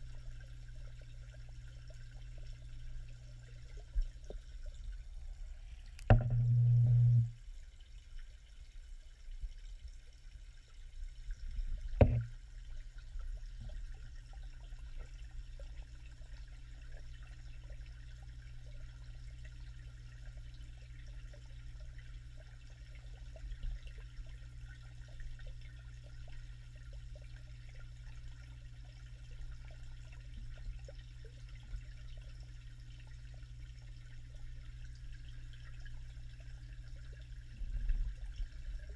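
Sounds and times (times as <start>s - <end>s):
muffled underwater hum: 0.0s - 7.6s, 11.6s - 38.9s
faint water trickling: 0.0s - 38.9s
short low rumble: 5.6s - 7.4s
sharp knocks: 6.1s - 6.5s, 12.0s - 12.3s.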